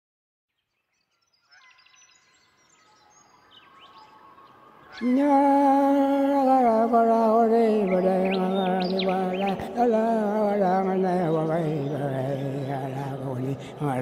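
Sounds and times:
birds chirping: 0:00.5 - 0:14.0
man chanting: 0:05.0 - 0:14.0.

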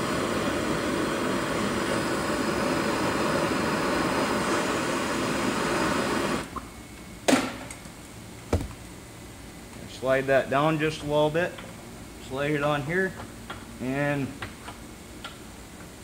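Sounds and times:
gas torch hissing: 0:00.0 - 0:06.6.

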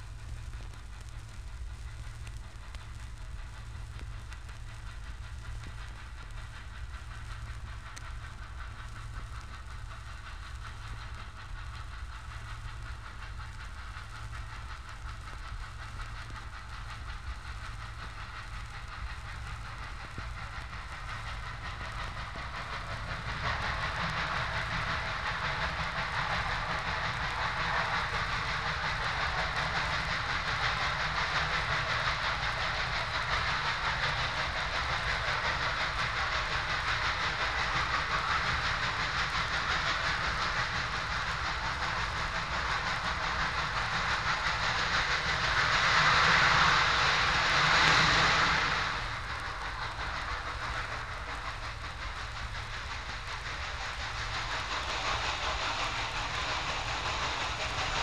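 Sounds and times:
steam train rumbling on rails: 0:00.0 - 0:58.0.

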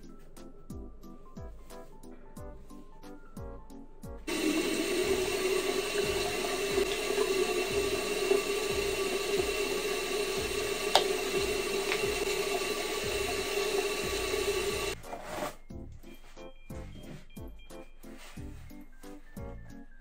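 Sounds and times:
background music with steady beat: 0:00.0 - 0:20.0
tap water running into sink: 0:04.3 - 0:15.0.

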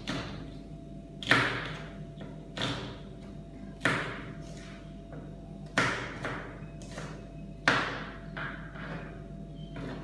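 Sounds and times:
knife chopping on cutting board: 0:01.2 - 0:01.9, 0:03.8 - 0:04.7.

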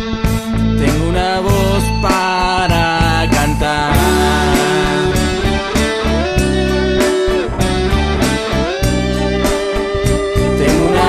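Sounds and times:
bass and drums beat: 0:00.0 - 0:11.0
lead guitar sliding notes: 0:04.0 - 0:11.0.

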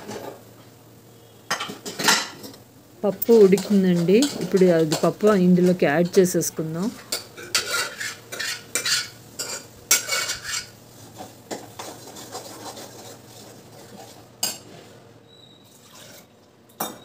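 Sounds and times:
stirring in a pan: 0:01.5 - 0:16.4
metal spoon scraping steel bowl: 0:03.2 - 0:06.2, 0:07.1 - 0:14.6.

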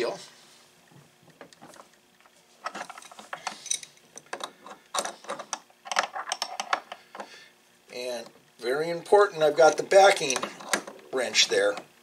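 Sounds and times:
wrenches clicking and scraping on metal: 0:02.6 - 0:07.0, 0:09.6 - 0:11.8.

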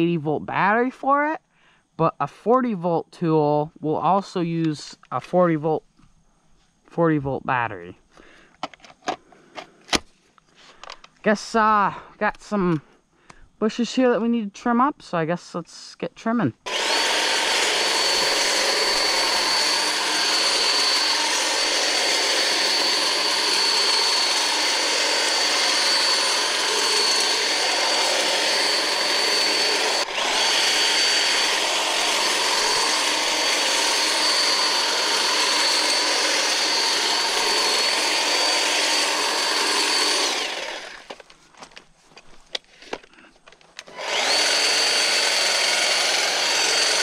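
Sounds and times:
electric hedge trimmer whining: 0:16.6 - 0:41.4, 0:43.8 - 0:47.0.

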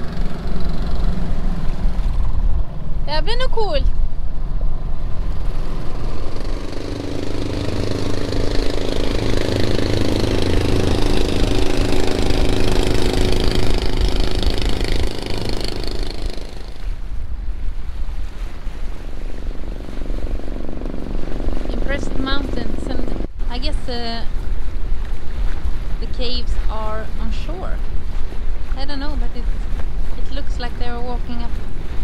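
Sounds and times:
boat engine running: 0:00.0 - 0:32.0
water noise: 0:00.0 - 0:32.0
wind: 0:00.0 - 0:32.0
droning tone: 0:04.2 - 0:16.9.

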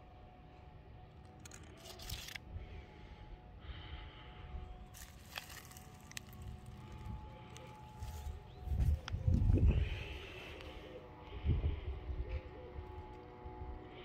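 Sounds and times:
low steady rumble: 0:00.0 - 0:14.0
leaves rustling: 0:04.9 - 0:10.8.

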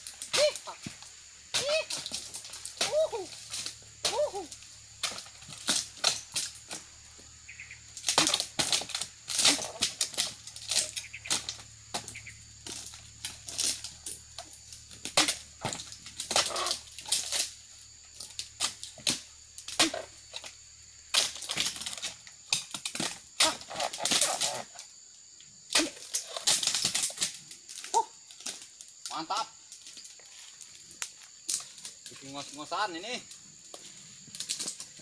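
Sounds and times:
palm fronds rustling: 0:00.0 - 0:35.0
chisel chopping palm fronds: 0:00.2 - 0:06.8, 0:08.0 - 0:13.9, 0:15.0 - 0:17.5, 0:19.0 - 0:20.1.

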